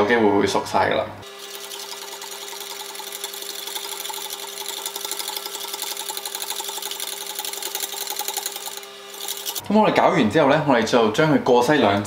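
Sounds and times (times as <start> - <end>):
whisk beating in a metal bowl: 1.4 - 9.6.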